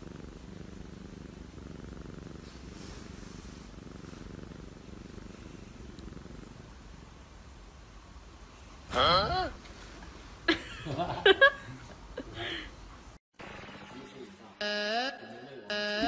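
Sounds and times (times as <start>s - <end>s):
cat purring: 0.0s - 9.0s.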